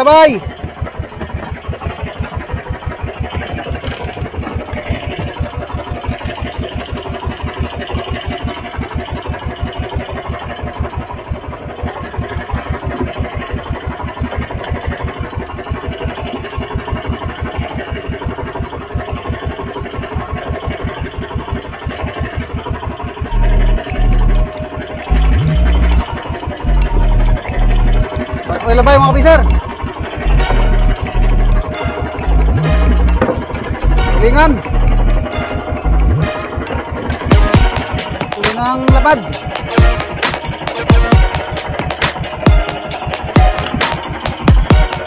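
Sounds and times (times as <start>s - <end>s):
small boat engine putter: 0.0s - 45.0s
low rumble: 23.3s - 37.6s.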